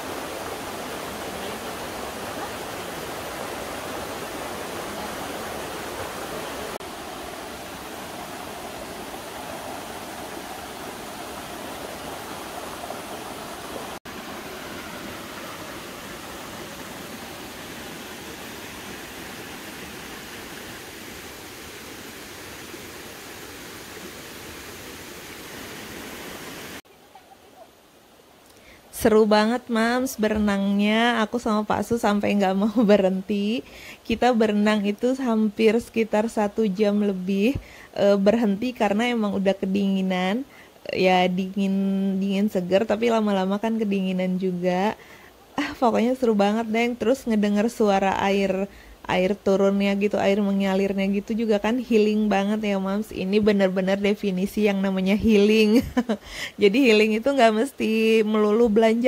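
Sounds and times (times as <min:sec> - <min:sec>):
waterfall rushing: 0:00.0 - 0:26.8.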